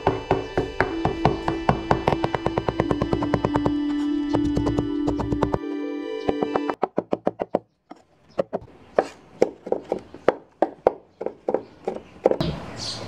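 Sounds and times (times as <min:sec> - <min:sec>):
cleaver chopping on wooden board: 0:00.0 - 0:05.6.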